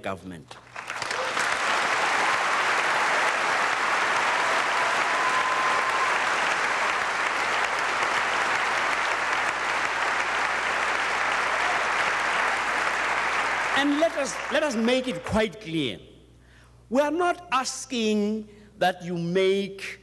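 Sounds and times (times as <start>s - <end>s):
audience applauding: 0.7s - 15.2s.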